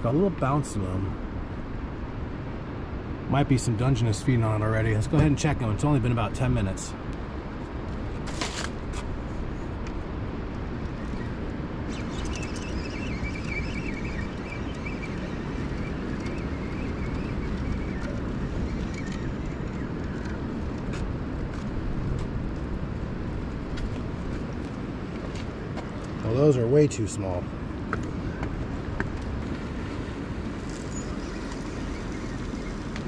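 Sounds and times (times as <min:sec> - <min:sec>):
wind on microphone: 0:06.9 - 0:26.4
fishing reel gear whine: 0:11.9 - 0:20.4.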